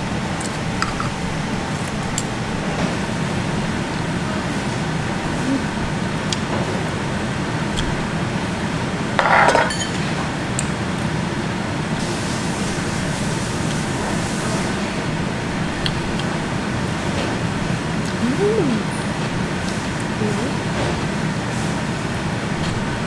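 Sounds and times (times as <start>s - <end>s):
utensils clinking on dishes: 9.2s - 10.2s.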